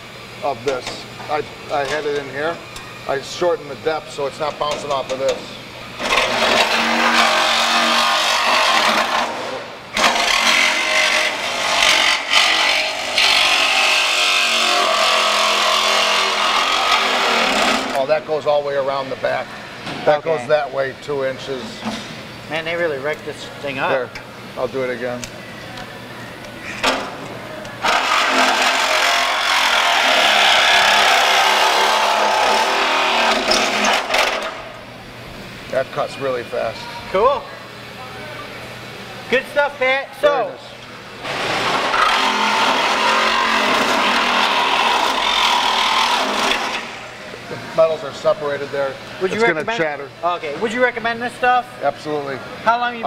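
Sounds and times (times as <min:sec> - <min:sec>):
reciprocating saw cutting metal: 0:06.0 - 0:18.0, 0:27.8 - 0:34.6, 0:41.2 - 0:47.1.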